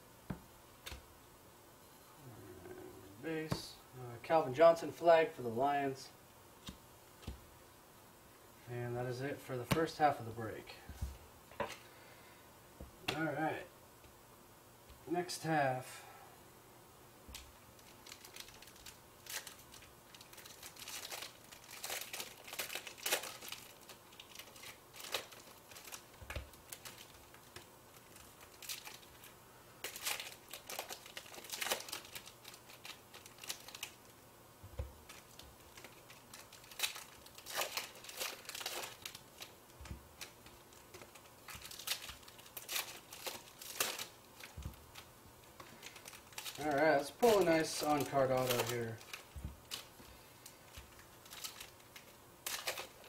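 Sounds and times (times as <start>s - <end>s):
foil wrappers crinkling: 17.3s - 34.1s, 34.8s - 53.0s.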